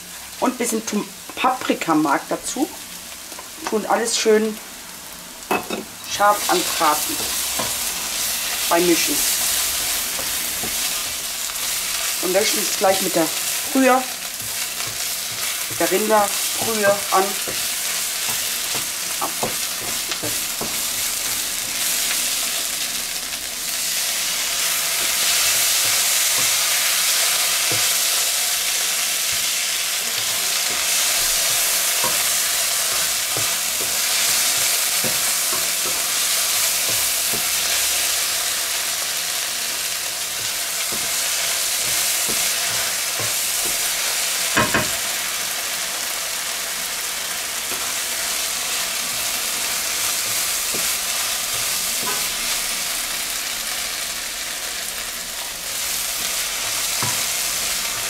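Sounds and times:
vegetables sizzling in a frying pan: 0.0 - 58.0
spatula scraping a pan: 50.1 - 52.5.

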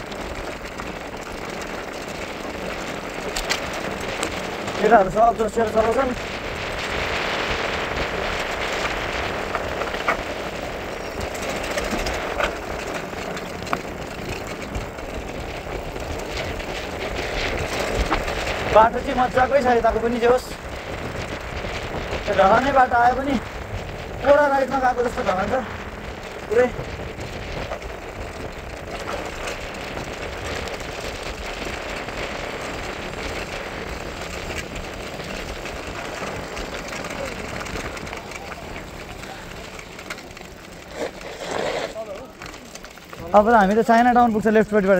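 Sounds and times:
rattle of small clicks: 0.0 - 20.6
bike clicks and knocks: 0.0 - 44.9
tyres crunching on gravel: 0.0 - 44.9
wind rush on microphone: 0.0 - 44.9.

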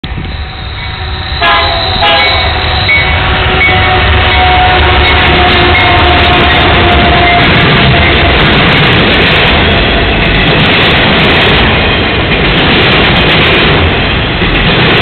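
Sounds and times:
train rumble: 0.0 - 15.0
locomotive air horn blasts: 1.0 - 8.2.

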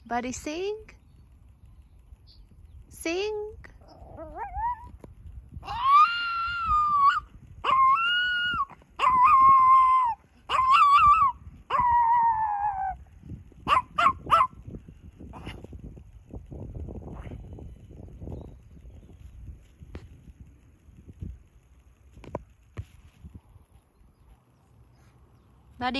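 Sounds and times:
dog yipping: 3.8 - 5.0, 5.6 - 13.0, 13.6 - 14.6
dog howling: 3.9 - 5.0, 5.6 - 13.0.

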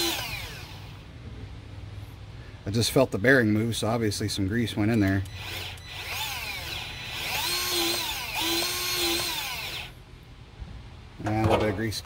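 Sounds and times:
grease gun motor whining: 0.0 - 1.0, 5.2 - 10.0.

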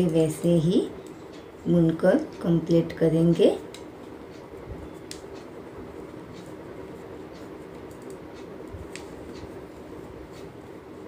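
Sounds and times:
low background hum: 0.0 - 11.0
knitting needles clicking: 6.4 - 9.6.

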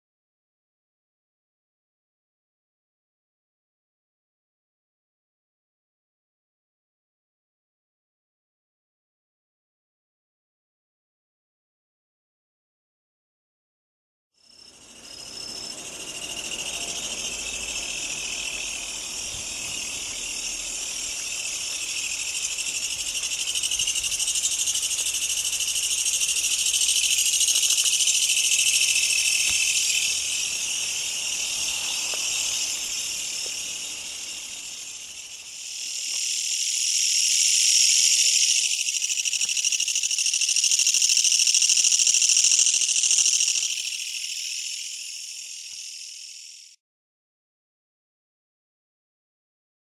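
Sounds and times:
katydid buzzing call: 14.8 - 46.8.

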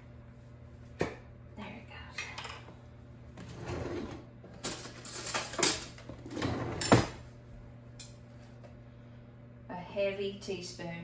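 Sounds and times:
metal cutlery clinking and rattling: 4.6 - 6.0.

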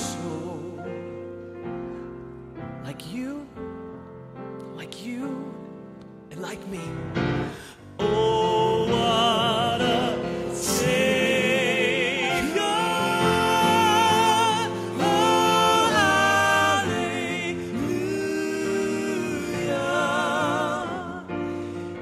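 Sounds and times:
male vocal group singing: 0.0 - 1.0, 6.4 - 22.0.

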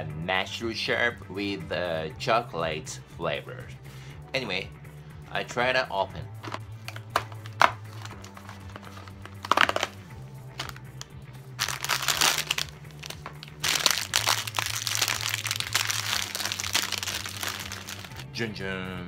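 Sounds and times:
soft background music: 0.0 - 19.0
plastic pouch crinkling and tearing: 6.9 - 10.0, 10.6 - 10.8, 11.6 - 18.2.

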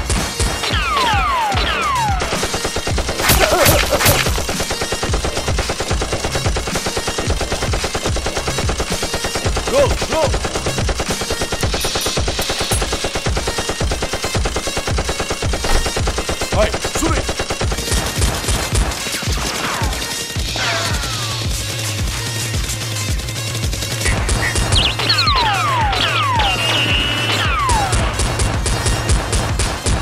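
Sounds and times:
automatic gunfire: 2.0 - 19.8.

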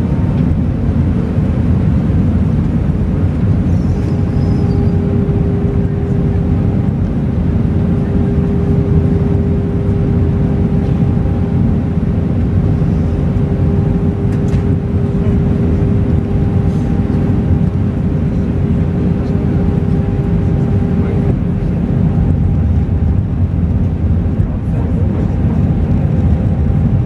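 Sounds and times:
jet engines and airflow rushing: 0.0 - 27.0
drone-like tone: 3.6 - 23.6.

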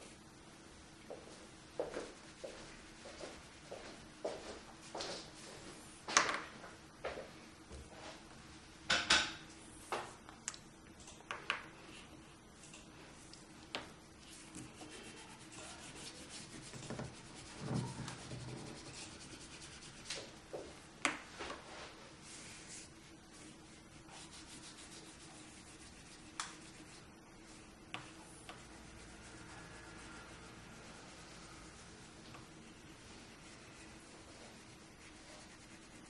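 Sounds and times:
crayon scribbling on paper: 14.3 - 20.1, 22.8 - 27.0, 34.6 - 36.0.

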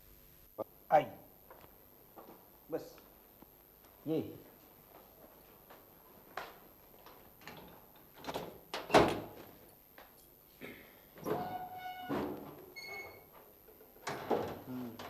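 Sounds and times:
door creaking: 11.2 - 13.4.

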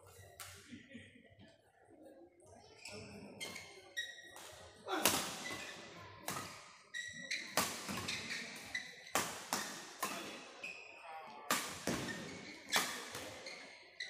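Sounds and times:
shoes squeaking on court: 2.8 - 11.0, 11.6 - 14.0
rackets hitting shuttlecock: 4.9 - 6.7, 7.5 - 10.5, 11.5 - 13.5.

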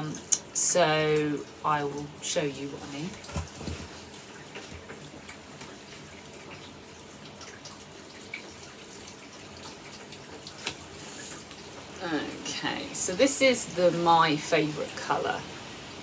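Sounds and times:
steady low hiss: 10.3 - 16.0.

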